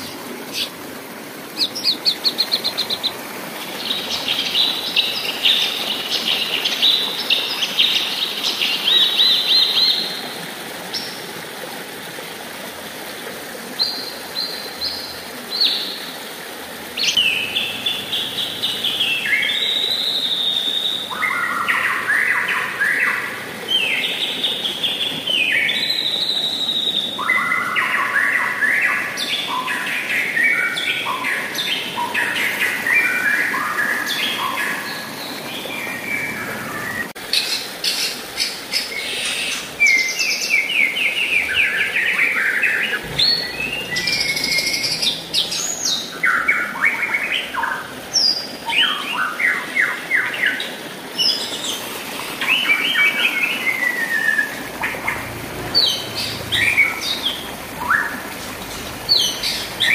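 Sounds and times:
songbirds singing: 0.0 - 10.3, 17.0 - 59.9
river water rushing: 0.0 - 59.9.

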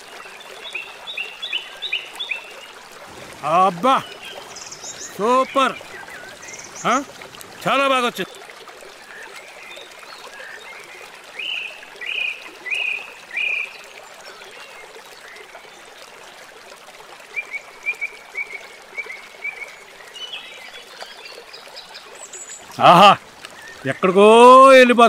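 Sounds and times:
bird chirps: 4.0 - 7.1.

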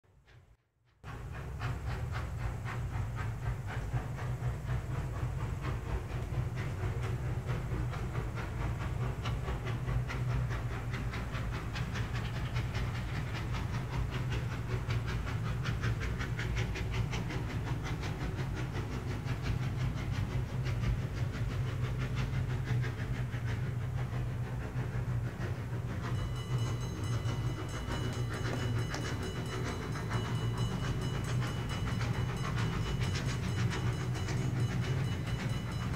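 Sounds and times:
model steam locomotive chuffing: 0.1 - 35.9
steady low hum: 17.2 - 35.9
steady higher tones: 26.0 - 35.9.

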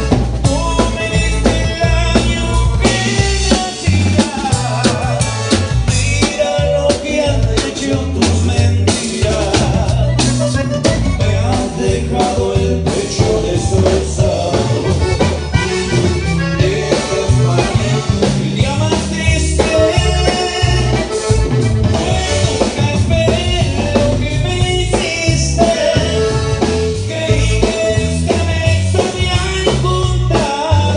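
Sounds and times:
button accordion melody: 0.0 - 30.9
drum kit: 0.0 - 30.9
electric bass: 0.0 - 30.9
strummed guitar: 0.0 - 30.9.

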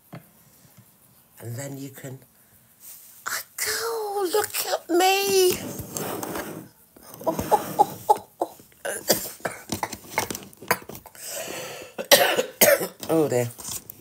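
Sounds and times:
woman coughing: 8.9 - 10.0, 12.0 - 13.0.

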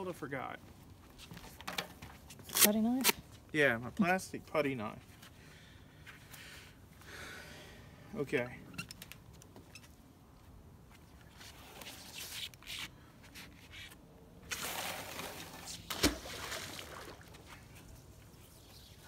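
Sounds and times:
rope rustling: 8.9 - 14.0.

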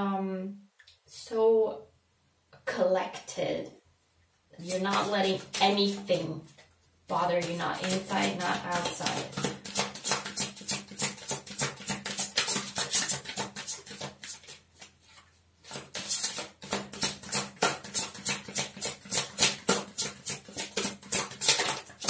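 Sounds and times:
cards being shuffled by hand: 4.6 - 22.0.

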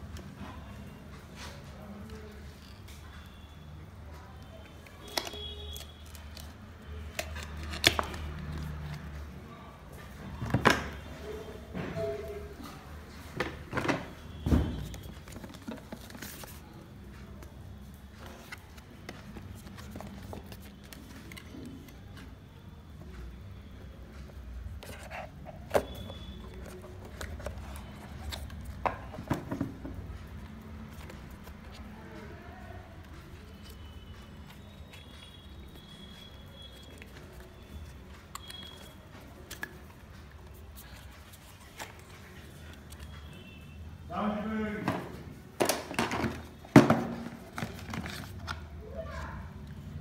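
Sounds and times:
cardboard and paper rustling: 13.5 - 17.5, 18.1 - 22.2, 24.7 - 30.2, 33.1 - 43.2, 45.7 - 49.4.

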